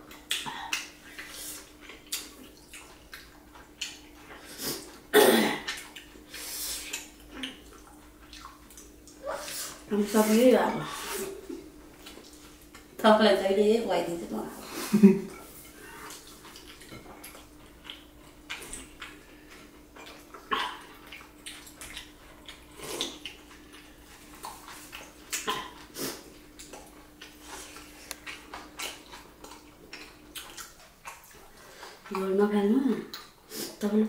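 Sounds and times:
faint steady hum: 0.0s - 34.0s
eating mouth smacks: 20.0s - 23.7s, 24.3s - 32.2s.

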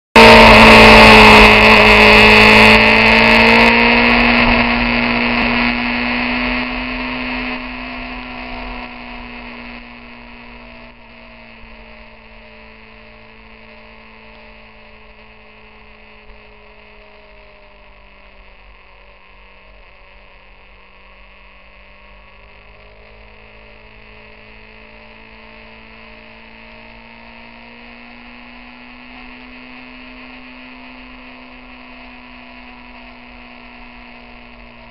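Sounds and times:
motorcycle engine running: 0.1s - 34.9s.

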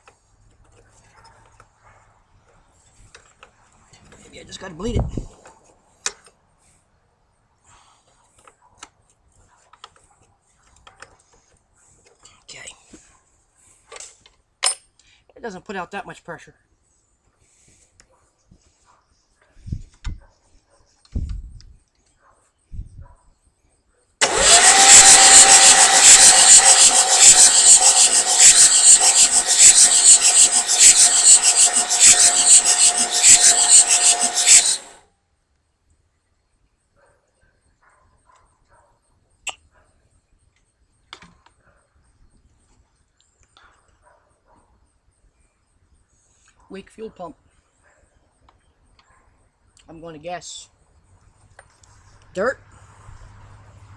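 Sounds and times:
starter motor cranking diesel engine: 24.2s - 35.0s.

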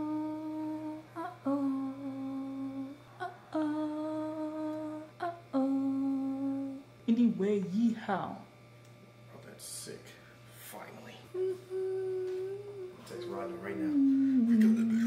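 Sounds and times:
person humming melody: 0.0s - 6.9s, 11.3s - 15.0s.

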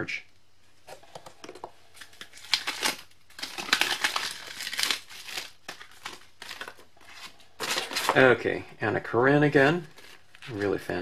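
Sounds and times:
paper and packaging rustling: 2.0s - 8.4s, 9.7s - 11.0s.

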